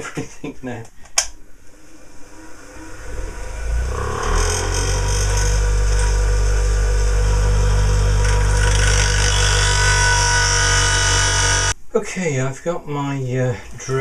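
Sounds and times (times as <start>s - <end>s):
bench grinder grinding steel: 2.7s - 11.8s.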